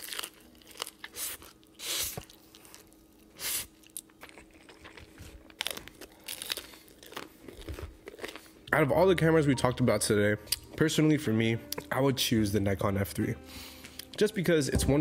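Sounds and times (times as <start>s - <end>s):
chewing and crunching food: 0.0s - 8.9s.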